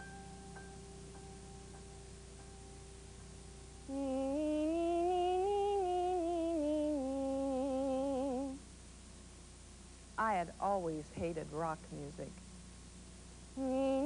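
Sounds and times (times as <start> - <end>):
person humming a tune: 3.8 - 8.6, 13.6 - 14.0.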